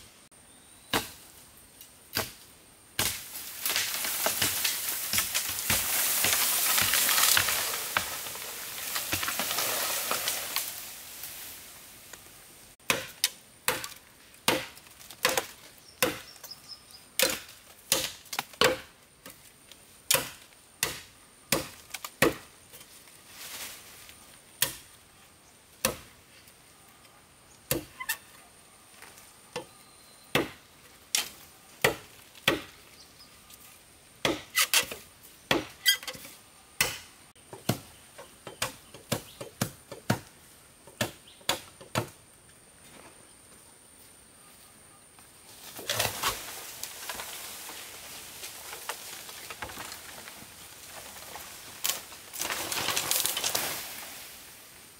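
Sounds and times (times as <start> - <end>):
blade chopping wood: 3.0 - 10.4, 12.8 - 16.4, 17.2 - 18.9, 20.1 - 22.5, 31.2 - 32.7, 34.2 - 36.2, 36.8 - 37.9.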